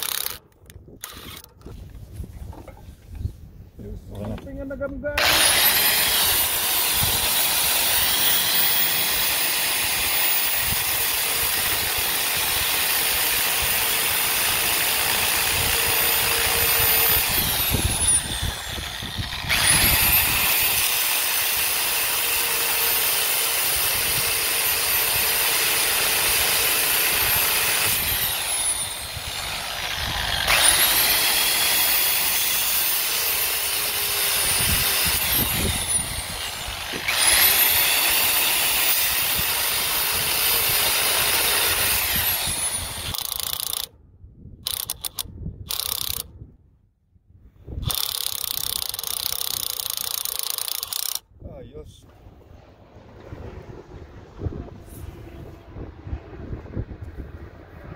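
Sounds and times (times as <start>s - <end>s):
angle grinder cutting steel: 0.0s - 0.4s, 5.2s - 43.9s.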